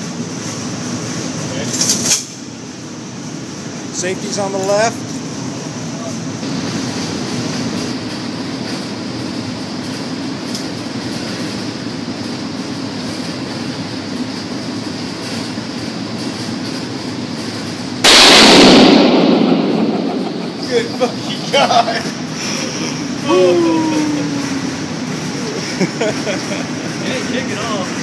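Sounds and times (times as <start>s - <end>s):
steady background hum: 0.0s - 28.0s
loud rifle shot with echo: 18.0s - 20.8s.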